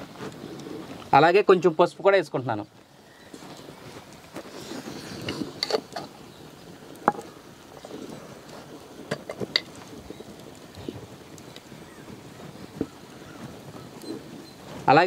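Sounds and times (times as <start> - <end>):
ladle scraping in clay pot: 3.2 - 6.2.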